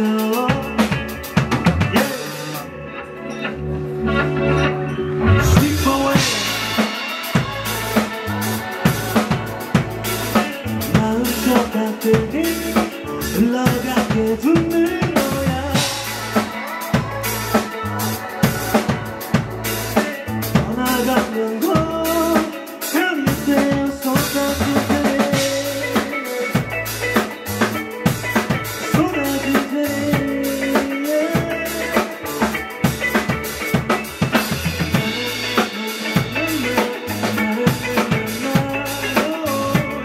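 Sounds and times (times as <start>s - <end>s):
drum kit with rimshots: 0.0s - 2.8s, 4.1s - 40.0s
live band playing: 0.0s - 40.0s.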